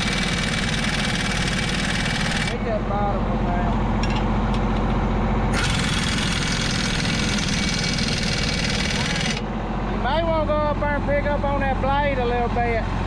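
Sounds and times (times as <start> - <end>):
pneumatic impact wrench hammering: 0.0 - 2.6, 5.5 - 9.4
low engine rumble: 2.5 - 13.0.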